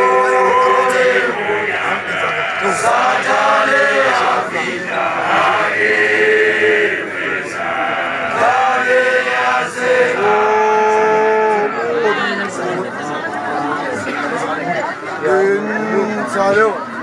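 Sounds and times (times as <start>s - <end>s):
group of men singing chant: 0.0s - 12.7s.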